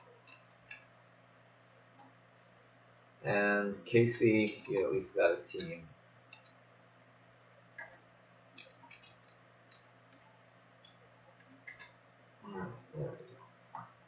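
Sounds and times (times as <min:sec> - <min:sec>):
low steady hum: 0:00.0 - 0:14.0
computer keyboard clicks: 0:11.6 - 0:12.0.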